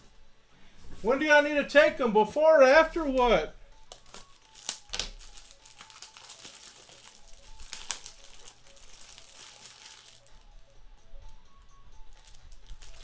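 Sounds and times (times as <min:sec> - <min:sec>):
wrappers crinkling and rustling: 0:03.8 - 0:10.6, 0:12.0 - 0:13.0.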